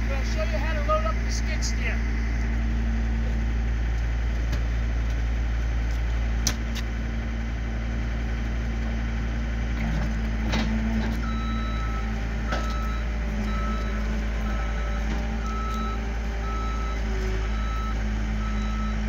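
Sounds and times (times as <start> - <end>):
diesel engine idling: 0.0 - 19.0
reversing alarm beeping: 11.2 - 19.0.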